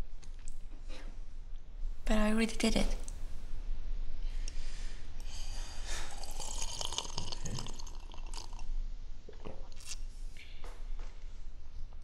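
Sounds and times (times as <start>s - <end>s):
person swallowing: 6.2s - 8.6s, 9.2s - 10.0s
liquid sloshing in a glass: 6.3s - 8.7s.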